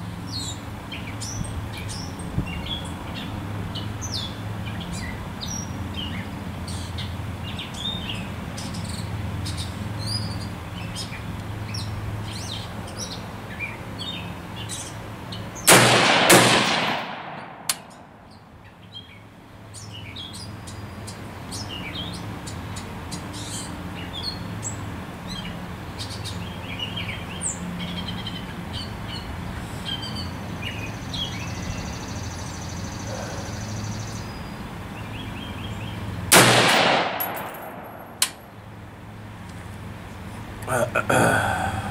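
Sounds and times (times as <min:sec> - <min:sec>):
rifle shots: 0:15.7 - 0:17.9, 0:36.3 - 0:38.3
birds chirping: 0:17.3 - 0:38.8.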